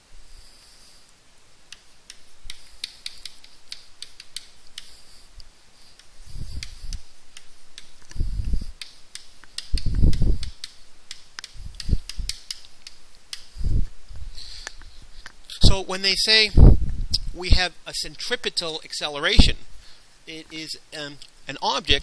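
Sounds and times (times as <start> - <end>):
chalk tapping and scratching: 1.7 - 13.7.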